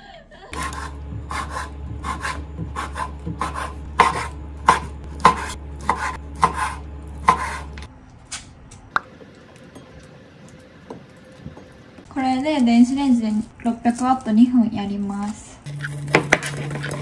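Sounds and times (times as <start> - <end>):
knife chopping on cutting board: 0.6 - 7.8.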